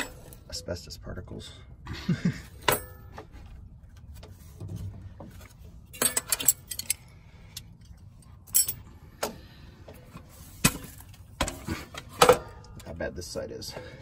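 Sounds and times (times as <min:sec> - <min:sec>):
low steady rumble: 0:00.0 - 0:14.0
metallic clinks and jingles: 0:05.9 - 0:07.1, 0:07.7 - 0:08.9.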